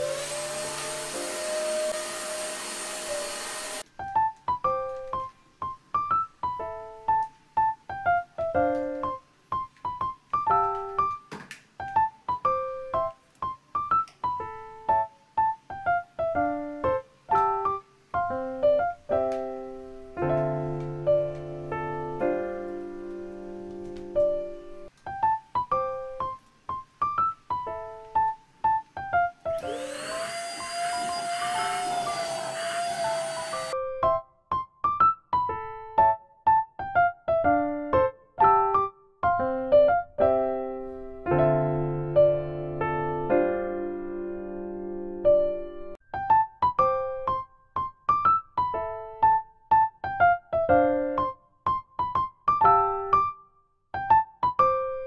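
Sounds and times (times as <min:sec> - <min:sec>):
handheld vacuum cleaner whine: 0:00.0 - 0:03.8, 0:29.6 - 0:33.8
piano music: 0:00.0 - 0:55.0.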